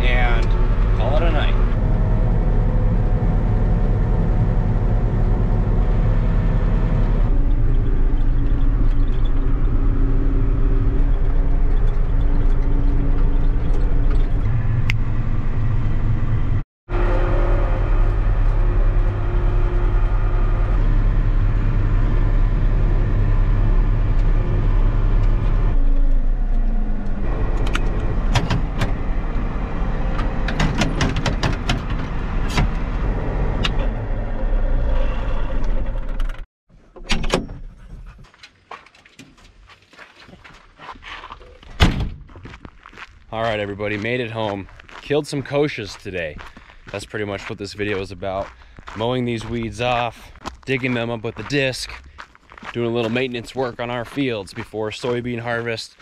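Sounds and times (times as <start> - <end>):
tractor diesel engine running: 0.0 - 36.5, 43.4 - 55.8
sharp clicks and rattles: 30.2 - 32.8.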